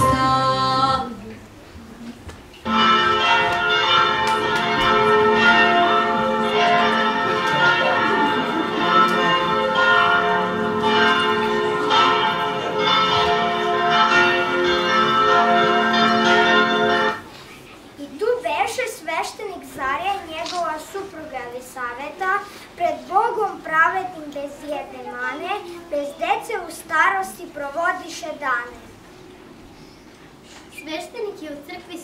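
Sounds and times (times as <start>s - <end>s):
peal of bells ringing: 2.7s - 17.3s.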